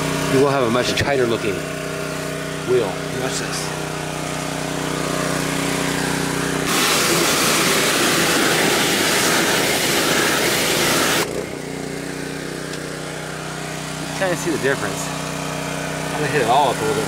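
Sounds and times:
small engine running: 0:00.0 - 0:17.0
water spray hissing: 0:04.2 - 0:11.3.

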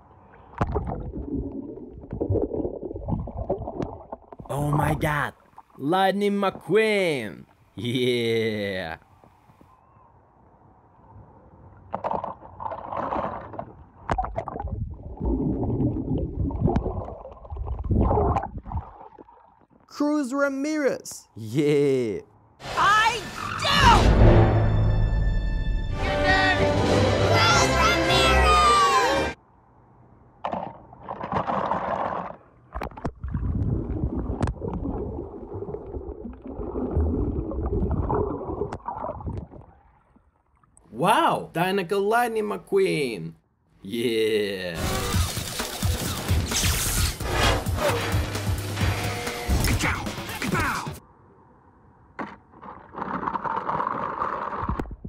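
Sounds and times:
underwater gurgling rumble: 0:00.0 - 0:04.5, 0:12.6 - 0:19.4, 0:32.9 - 0:40.2.

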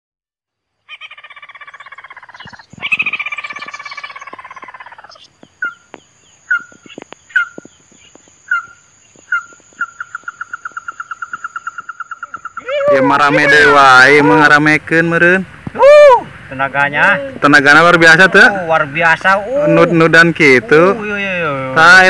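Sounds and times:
animal short sharp calls: 0:00.9 - 0:05.8
animal pulsing trills: 0:00.9 - 0:05.9, 0:06.5 - 0:12.8.

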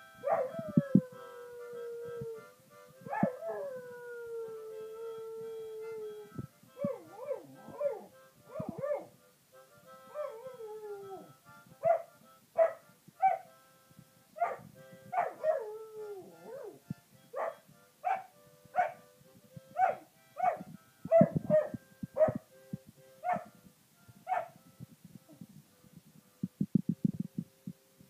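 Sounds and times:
held musical notes: 0:00.0 - 0:28.0
dog yelping barks: 0:00.2 - 0:00.6, 0:03.1 - 0:03.6, 0:11.8 - 0:13.5, 0:14.4 - 0:15.6, 0:17.4 - 0:19.0, 0:19.8 - 0:22.4, 0:23.2 - 0:23.5, 0:24.3 - 0:24.6.

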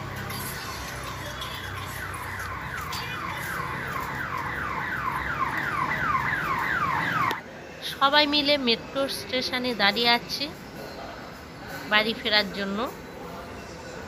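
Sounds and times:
low traffic hum: 0:00.0 - 0:10.7.

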